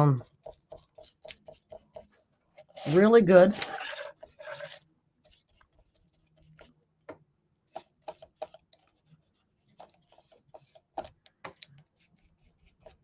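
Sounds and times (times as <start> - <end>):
brush tapping on paper: 0.1 - 2.1, 6.5 - 8.9.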